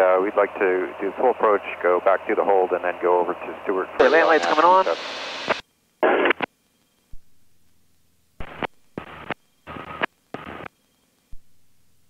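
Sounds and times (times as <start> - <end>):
headset radio bursts: 4.0 - 6.5.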